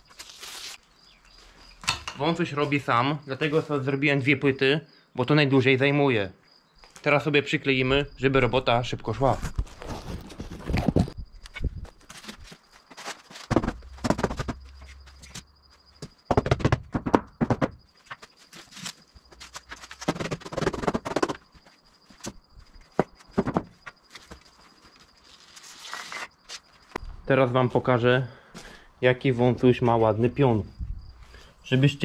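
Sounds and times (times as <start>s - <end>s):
knocks and thuds of foam boards: 12.0s - 15.4s, 16.0s - 18.3s, 19.4s - 21.5s, 22.1s - 24.5s.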